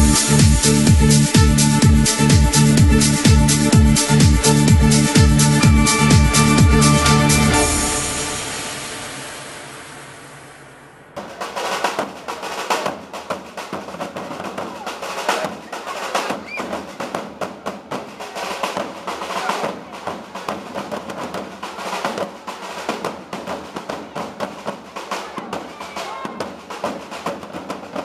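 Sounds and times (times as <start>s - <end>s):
side drums cadence: 0.0s - 17.8s.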